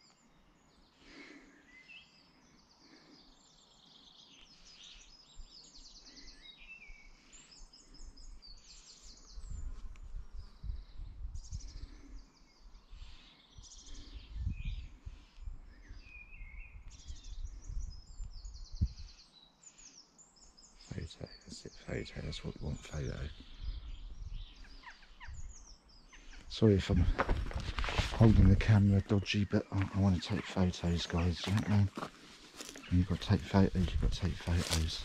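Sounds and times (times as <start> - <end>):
songbirds chirping and trilling: 0.0 - 35.0
wind buffeting microphone: 9.3 - 12.0, 14.1 - 19.1, 22.7 - 25.7, 26.8 - 29.2, 32.8 - 35.0.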